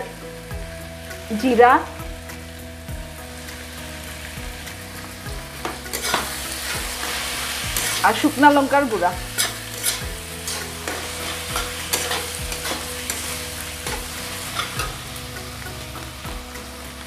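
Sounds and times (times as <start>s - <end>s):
food sizzling in oil: 0.0s - 17.0s
metal spatula scraping pan: 5.6s - 8.3s, 9.3s - 15.0s.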